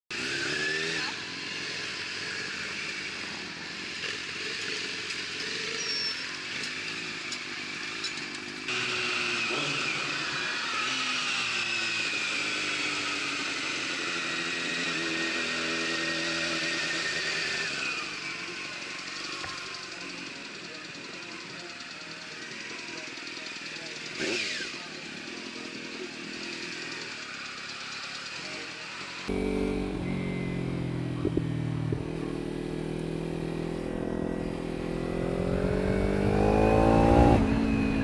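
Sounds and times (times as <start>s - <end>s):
motorcycle engine revving: 0.1s - 18.4s, 29.2s - 38.0s.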